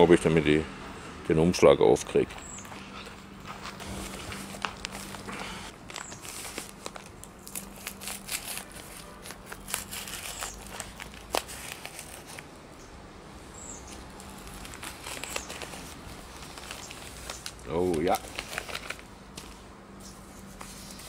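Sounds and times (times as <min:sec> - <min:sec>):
paper crinkling and tearing: 0:03.5 - 0:12.5, 0:13.9 - 0:21.0.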